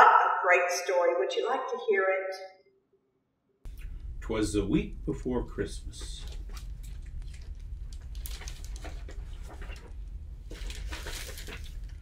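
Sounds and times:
steady low hum: 0:03.6 - 0:12.0
book pages rustling: 0:06.2 - 0:12.0.

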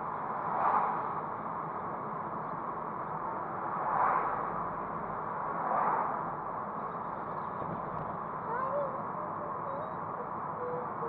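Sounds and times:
car road and engine noise: 0:00.0 - 0:11.0
oncoming car passing: 0:03.4 - 0:06.6.

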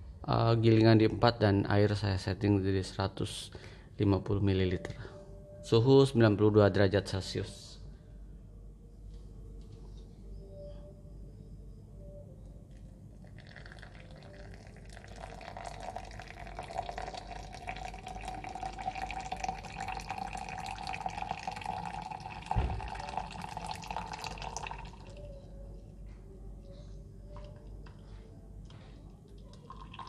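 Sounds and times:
water pouring from kettle: 0:13.2 - 0:25.3, 0:29.5 - 0:30.0.

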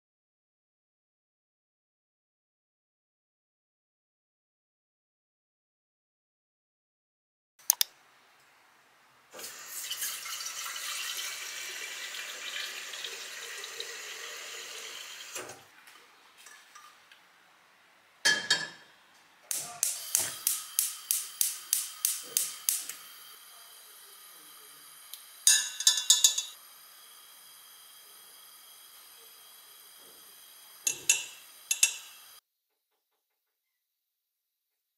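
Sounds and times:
tap water running into kettle: 0:09.4 - 0:15.7, 0:20.0 - 0:23.5
gas hob igniter clicking: 0:19.5 - 0:23.0.

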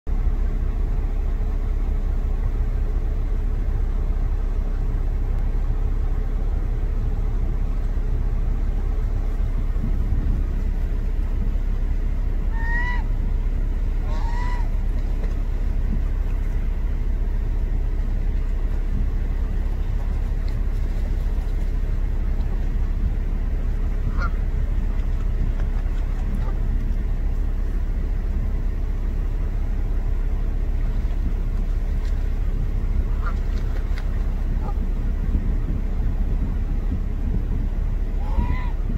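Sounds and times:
steady low rumble: 0:00.0 - 0:38.9
goose honking: 0:12.4 - 0:13.3, 0:13.9 - 0:15.2, 0:23.7 - 0:26.7, 0:33.0 - 0:33.7, 0:34.5 - 0:34.9, 0:38.1 - 0:38.9.

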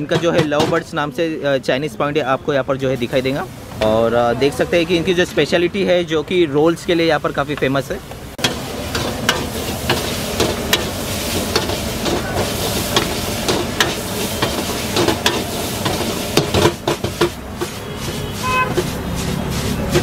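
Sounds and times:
noodles sizzling in wok: 0:07.0 - 0:20.0
gas burner: 0:07.4 - 0:20.0
metal spatula scraping pan: 0:08.4 - 0:20.0.

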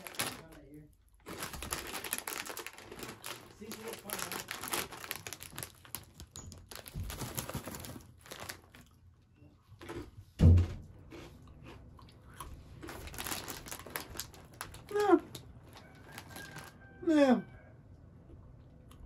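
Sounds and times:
foil snack bag crinkling: 0:00.0 - 0:09.0, 0:12.8 - 0:16.8
crunchy snack being chewed: 0:01.2 - 0:09.0, 0:09.8 - 0:10.2, 0:11.0 - 0:16.8
loud thump: 0:10.4 - 0:10.8.

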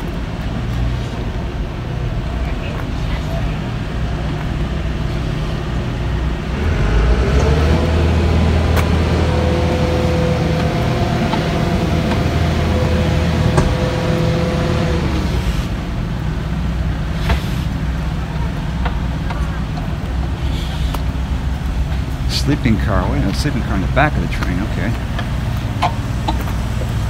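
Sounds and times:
train machinery humming: 0:00.0 - 0:27.0
machine whine: 0:06.5 - 0:15.8.

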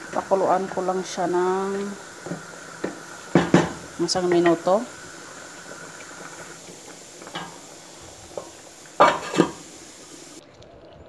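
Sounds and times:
metal lid clanking on pot: 0:09.0 - 0:09.6.

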